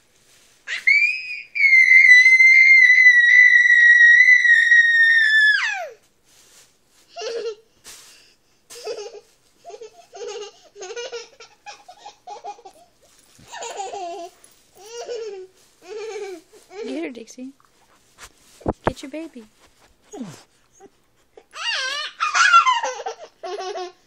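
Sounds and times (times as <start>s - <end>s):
baby laughing: 8.8s - 12.9s, 13.5s - 16.5s, 20.8s - 24.0s.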